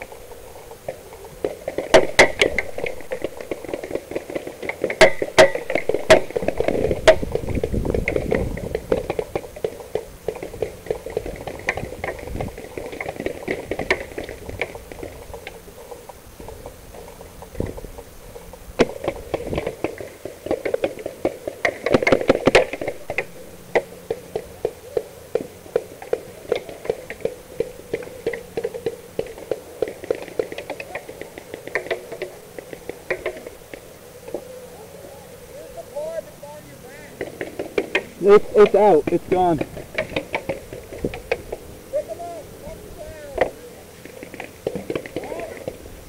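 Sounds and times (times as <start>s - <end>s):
paintball markers firing: 37.2s - 41.6s.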